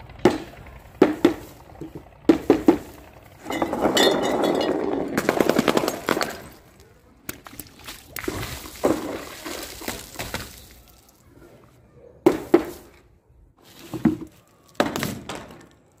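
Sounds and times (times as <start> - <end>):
water balloons bursting and splashing: 5.1 - 11.2.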